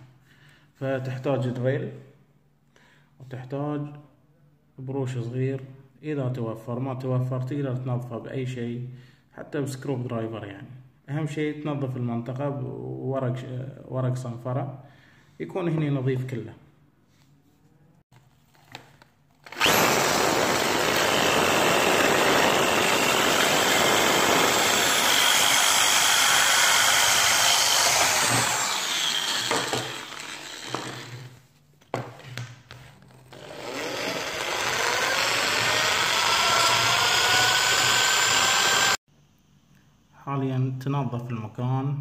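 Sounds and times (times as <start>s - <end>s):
electric drill whining: 19.4s - 31.3s, 33.3s - 39.0s.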